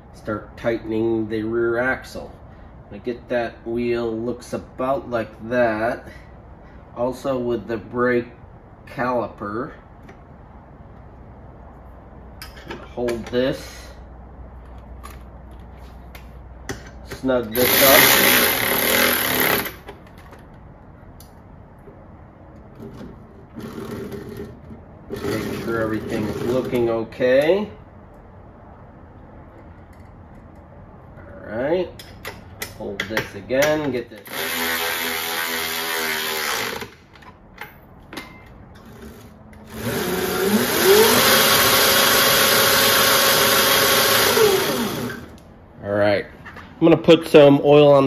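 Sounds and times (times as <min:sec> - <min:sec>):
electric ratchet running: 0:17.6 - 0:19.9, 0:34.2 - 0:37.0, 0:39.6 - 0:45.4
electric motor whine: 0:39.7 - 0:45.3.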